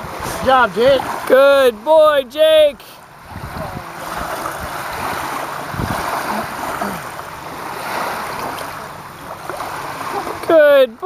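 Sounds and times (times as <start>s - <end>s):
waves lapping shore: 0.0s - 11.0s
wind buffeting microphone: 3.0s - 10.2s.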